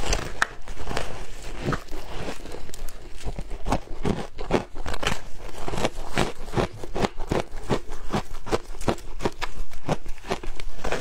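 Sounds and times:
shaved ice being chewed: 0.0s - 11.0s.

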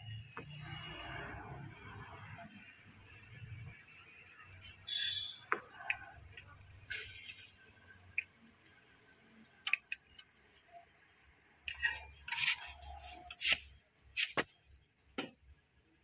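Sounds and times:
sharp clicks and taps of metal parts: 9.6s - 10.3s
rustling and scraping of hands: 11.7s - 14.6s.

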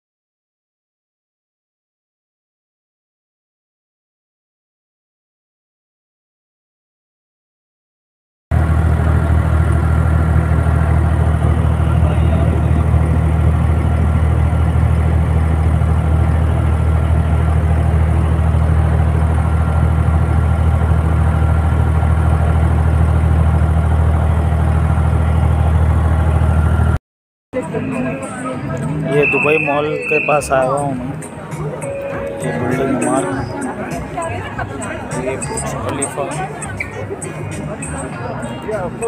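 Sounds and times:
boat engine droning: 8.5s - 27.0s, 27.6s - 39.0s.

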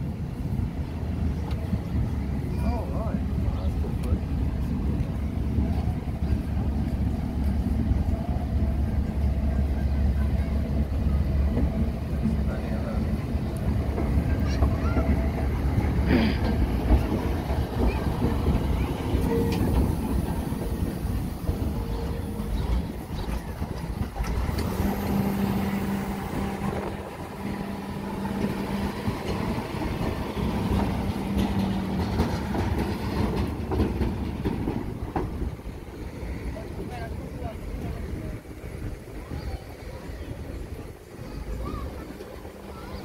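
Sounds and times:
diesel engine running: 24.2s - 32.4s.

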